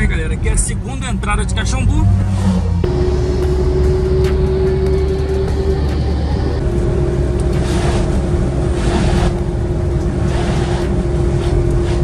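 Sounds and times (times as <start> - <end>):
car engine rumble: 0.0 - 12.0.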